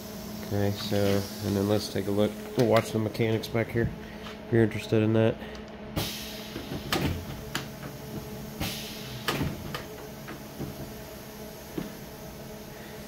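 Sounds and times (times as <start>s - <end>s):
pneumatic prop knocking and clacking: 6.0s - 11.0s.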